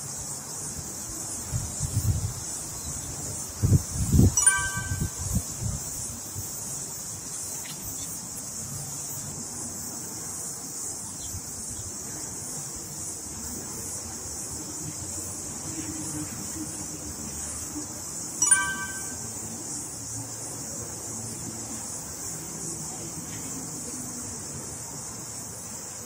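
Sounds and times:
insects chirring: 0.0s - 26.0s
bright chime: 4.4s - 5.4s, 18.4s - 19.5s.

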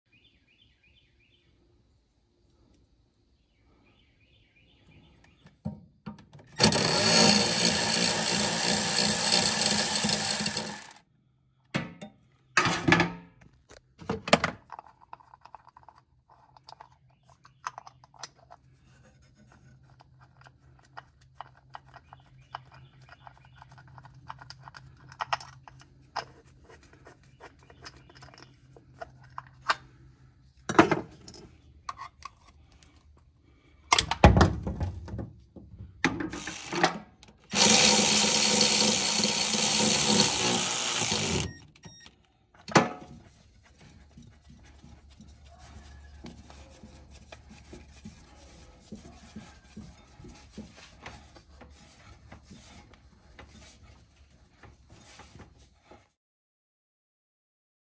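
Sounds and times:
cordless power tool running: 6.6s - 11.0s, 36.4s - 41.6s.

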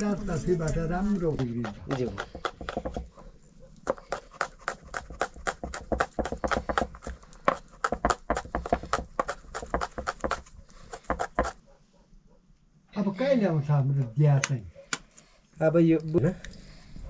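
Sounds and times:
rapid sharp knocks: 4.4s - 10.4s.

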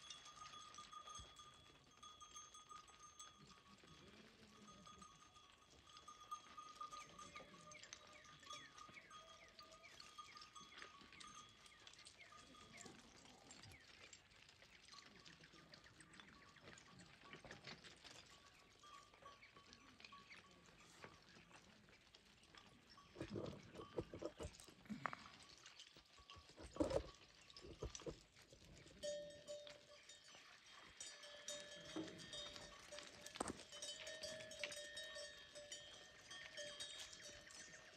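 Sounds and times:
water dripping and splashing: 9.2s - 20.2s.

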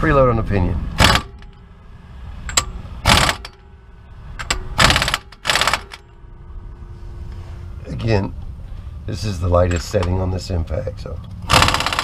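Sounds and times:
impact wrench hammering: 1.0s - 1.6s, 2.5s - 3.6s, 4.4s - 6.0s, 11.5s - 12.0s.

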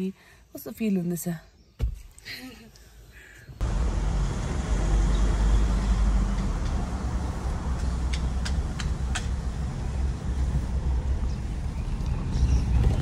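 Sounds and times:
car engine and road noise: 3.6s - 13.0s
sharp clicks: 7.7s - 9.4s.

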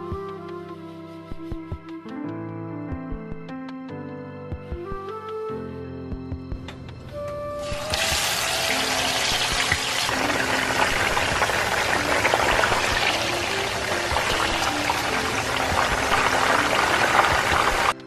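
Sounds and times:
chicken sizzling in hot oil: 7.6s - 18.0s.

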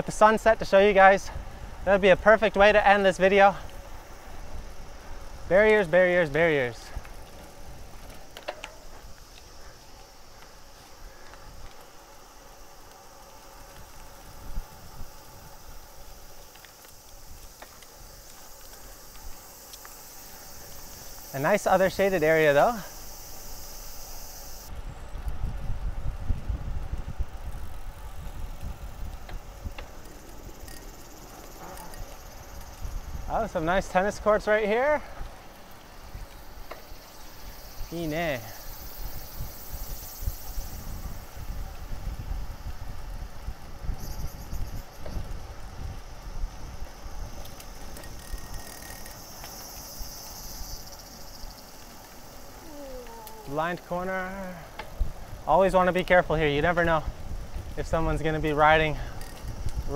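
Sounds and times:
wind buffeting microphone: 0.0s - 11.8s, 13.5s - 19.6s, 20.4s - 51.4s, 52.4s - 59.9s
insects buzzing: 0.0s - 25.2s, 27.0s - 59.9s
bike rolling on paved path: 0.0s - 59.9s
road rumble: 0.0s - 59.9s
faint clicks: 6.3s - 14.2s, 15.8s - 21.3s, 28.6s - 32.9s, 47.4s - 50.4s, 58.4s - 59.9s
wind on microphone: 24.7s - 33.6s, 37.3s - 48.6s, 54.9s - 59.9s.

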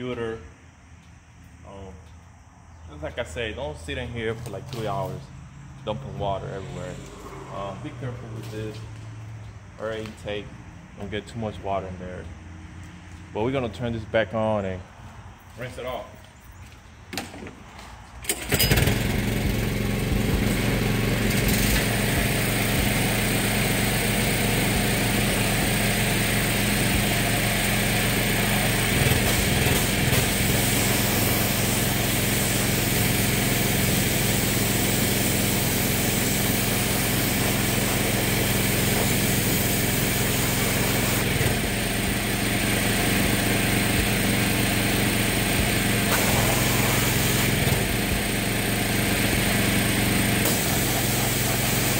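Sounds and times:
pressure washer motor hum: 18.3s - 51.9s
water jet hissing: 28.4s - 41.4s, 46.1s - 47.6s, 50.4s - 51.9s.

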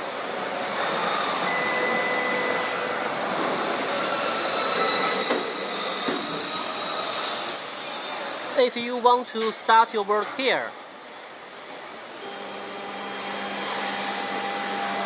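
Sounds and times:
machine motor whine: 0.0s - 8.6s, 12.1s - 15.0s.

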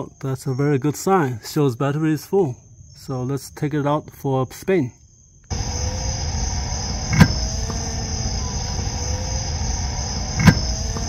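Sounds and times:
crickets chirping: 0.0s - 11.0s
ball machine humming: 5.5s - 11.0s
ball machine firing pop: 7.1s - 7.4s, 10.3s - 11.0s.

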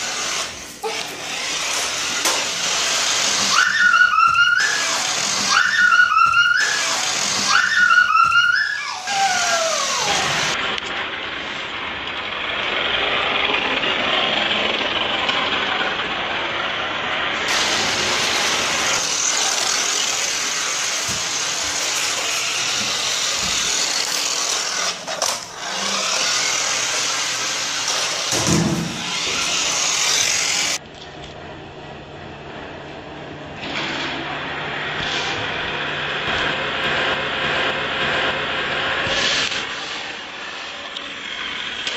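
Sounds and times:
toy car motors whirring: 0.0s - 11.1s, 11.7s - 30.8s, 38.8s - 41.9s.

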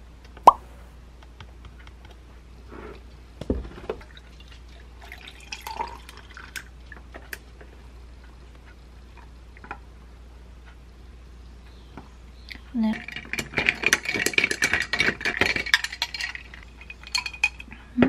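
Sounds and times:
milk pouring into a glass: 4.0s - 6.7s.

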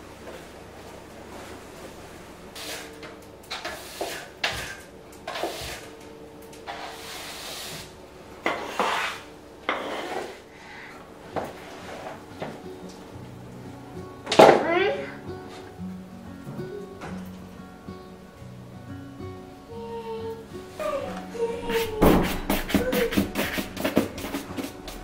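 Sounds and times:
broom sweeping wooden floor: 0.2s - 3.0s, 3.6s - 6.0s, 6.6s - 10.5s, 11.3s - 12.6s, 20.6s - 25.0s
sharp knocks: 21.9s - 24.8s.

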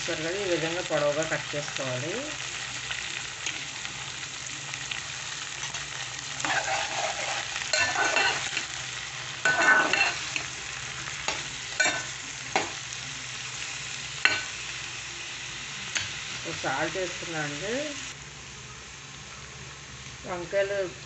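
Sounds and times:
eggplant sizzling in hot oil: 0.0s - 21.0s
spoon stirring and scraping pan: 4.8s - 12.9s, 14.2s - 14.6s.

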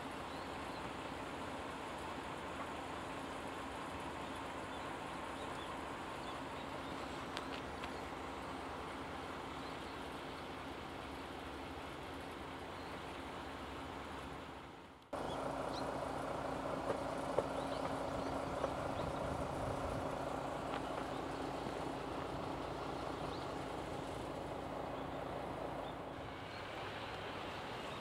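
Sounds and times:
outdoor background: 0.0s - 28.0s
train rumbling on the line: 15.2s - 28.0s.

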